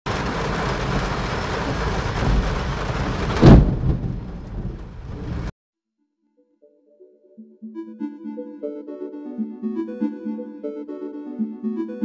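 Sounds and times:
heavy rain on a car: 0:00.1 - 0:05.5
thunder crack and rumble: 0:00.1 - 0:05.5.

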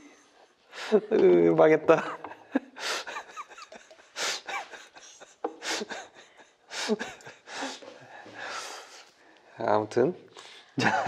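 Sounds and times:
man laughing: 0:01.9 - 0:07.8, 0:10.8 - 0:11.0.

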